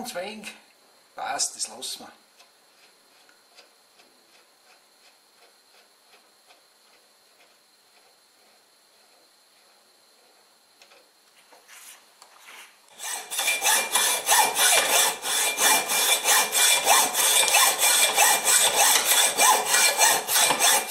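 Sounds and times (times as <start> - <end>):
rhythmic scraping: 13.0 - 20.9.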